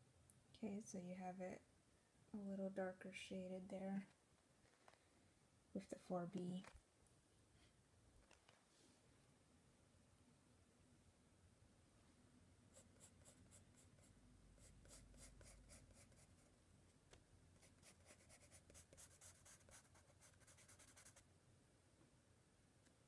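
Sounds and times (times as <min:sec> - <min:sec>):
pencil scratching on paper: 0:12.7 - 0:16.5, 0:17.6 - 0:21.2.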